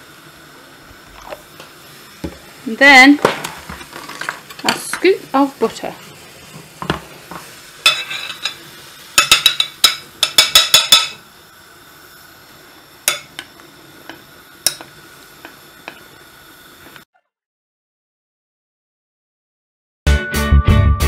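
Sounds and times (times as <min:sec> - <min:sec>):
metal spoon clinking on glass: 0:09.2 - 0:11.2.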